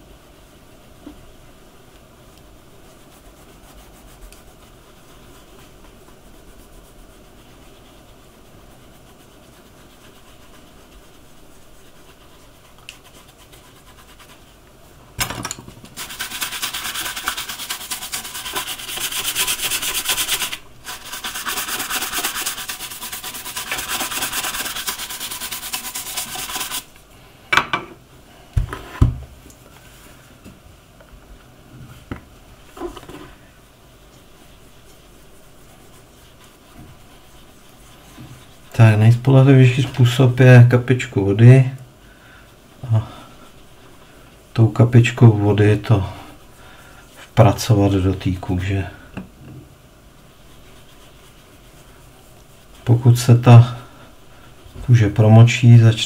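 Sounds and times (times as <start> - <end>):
hand rubbing a shoe: 2.8 - 14.6, 16.0 - 26.9, 31.9 - 41.3, 50.1 - 56.0.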